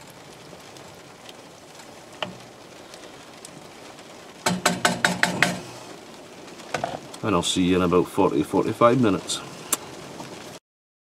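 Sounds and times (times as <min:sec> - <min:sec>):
heavy rain: 0:00.0 - 0:10.6
wooden spoon knocking on frying pan: 0:02.2 - 0:02.5, 0:04.4 - 0:05.8.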